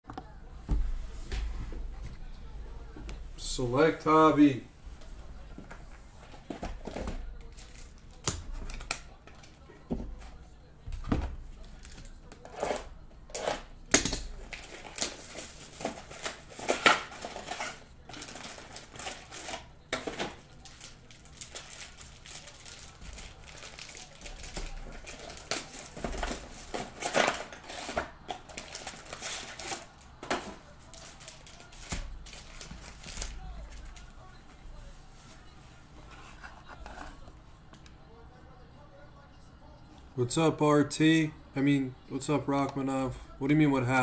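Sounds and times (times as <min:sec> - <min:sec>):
foil wrappers crinkling: 0:07.3 - 0:09.6, 0:11.6 - 0:34.2
card packs tapping and clicking: 0:13.4 - 0:34.1.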